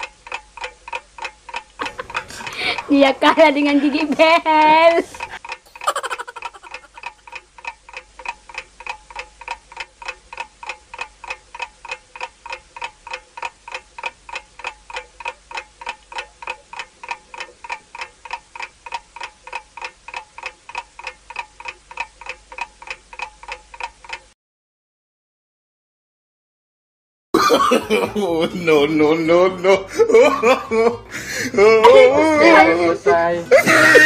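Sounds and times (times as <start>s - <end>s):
clock ticking with ringing tone: 0.0s - 24.4s.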